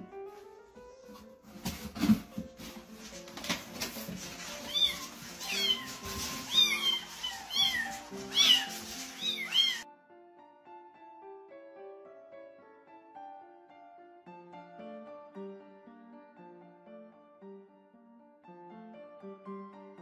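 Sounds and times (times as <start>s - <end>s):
background piano music: 0.0s - 20.0s
cardboard carrier knocks and rustles: 1.5s - 4.2s
kittens meowing: 4.7s - 9.8s.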